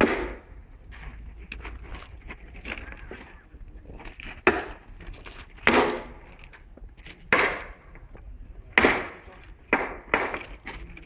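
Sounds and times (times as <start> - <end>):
sledgehammer striking steel: 0.0 - 0.6, 4.5 - 4.8, 5.6 - 6.5, 7.3 - 10.6.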